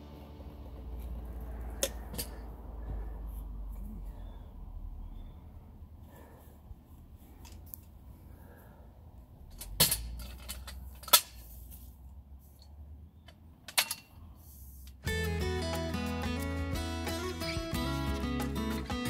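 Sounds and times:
low rumble: 0.0 - 6.0.

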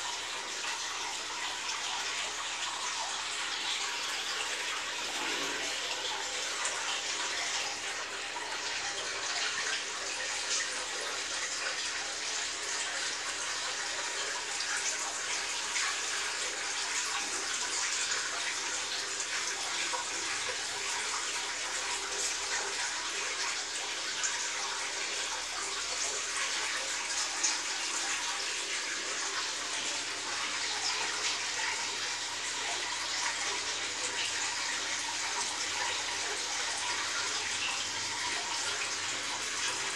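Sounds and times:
water splashing and bubbling: 4.5 - 7.9.

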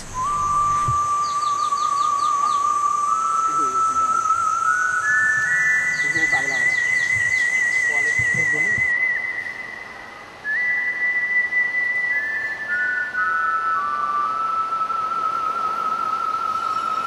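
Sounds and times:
slow electronic whistle-like melody: 0.0 - 17.0
steady high-pitched buzz: 0.0 - 17.0.

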